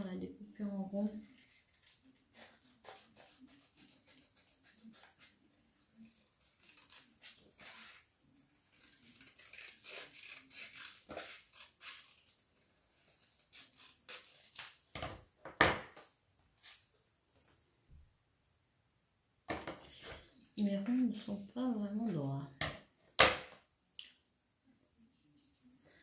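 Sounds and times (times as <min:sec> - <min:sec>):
scissors snipping paper: 0:01.2 - 0:15.1.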